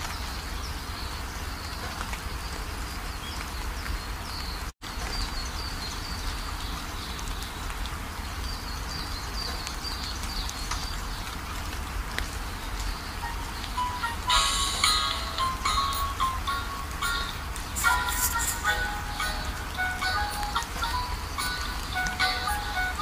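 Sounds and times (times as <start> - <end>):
rushing hiss of water: 12.0 - 23.0.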